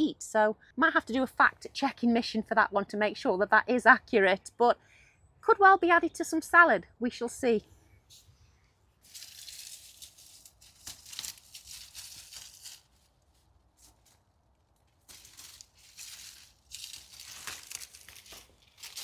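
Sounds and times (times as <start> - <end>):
dry leaves crackling and rustling: 9.0 - 19.0.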